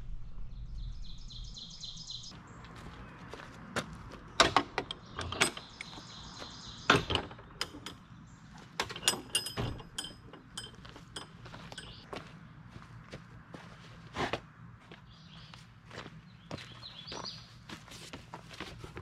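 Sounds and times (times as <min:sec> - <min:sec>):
latch and cables rattling: 0:04.4 - 0:06.0, 0:06.9 - 0:08.0, 0:08.8 - 0:12.0
metal tailgate clanking: 0:06.9 - 0:08.0, 0:08.8 - 0:10.8.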